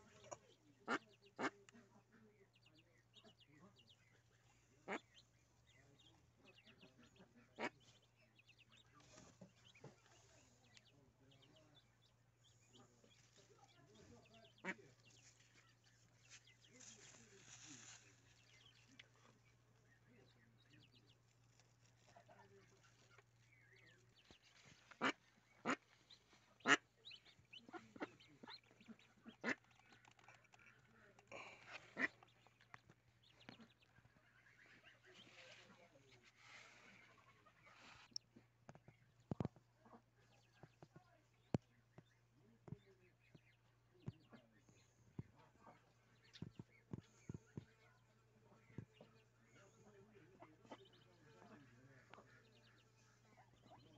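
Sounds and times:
ducklings peeping: 0.0 - 53.9
duck quacking: 0.8 - 1.8, 4.8 - 5.2, 6.9 - 8.0, 24.9 - 29.6, 31.6 - 32.4.

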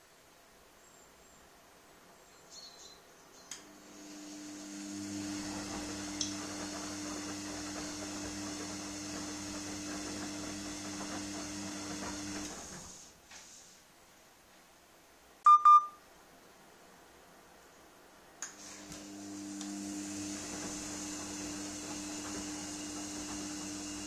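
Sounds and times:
washing machine motor hum: 3.6 - 13.1, 18.5 - 24.0
loud double beep: 15.5 - 16.0.

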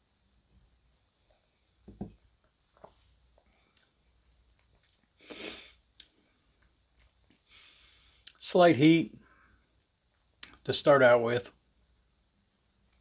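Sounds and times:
glass thump on wooden bar: 1.9 - 2.2.

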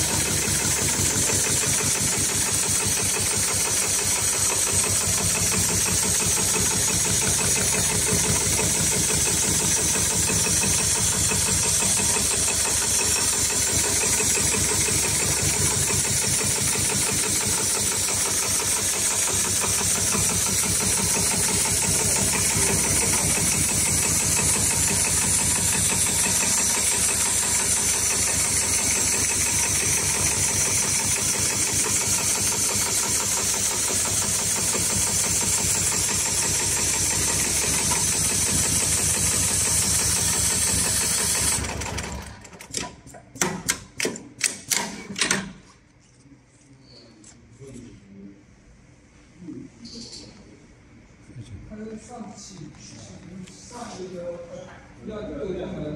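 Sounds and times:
sewing machine stitching: 0.0 - 43.1.

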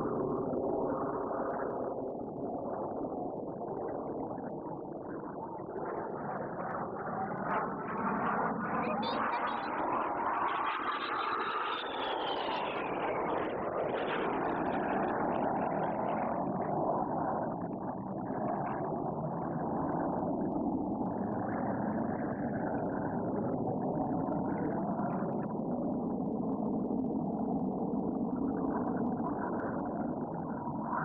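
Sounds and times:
jet engines rushing overhead: 6.9 - 25.5.

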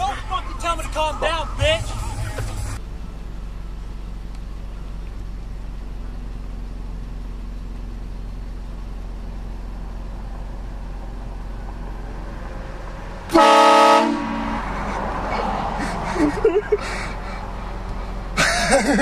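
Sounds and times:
low hum: 1.4 - 13.1
air train horn blast: 13.3 - 14.7.

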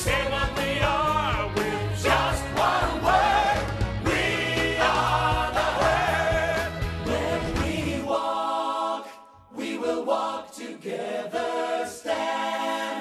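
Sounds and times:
voices singing in harmony: 0.0 - 13.0.

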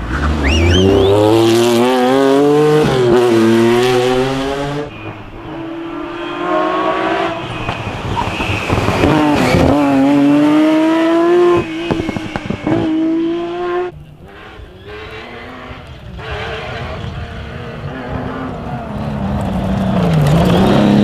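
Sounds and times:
rally car accelerating hard: 0.0 - 21.0
exhaust pops and crackles: 7.5 - 10.3, 11.5 - 12.9.

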